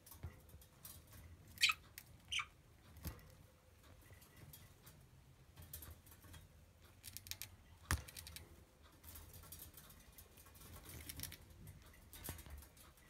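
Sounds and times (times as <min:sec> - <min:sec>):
budgie beak scraping and nibbling: 0:10.6 - 0:11.6.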